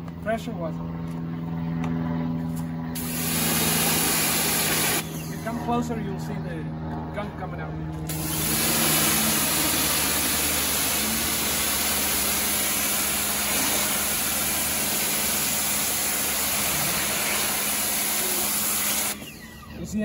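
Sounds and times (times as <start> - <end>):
pressure washer jet hissing: 3.0 - 5.4, 8.1 - 19.2
washer motor and pump hum: 3.0 - 5.5, 8.1 - 20.0.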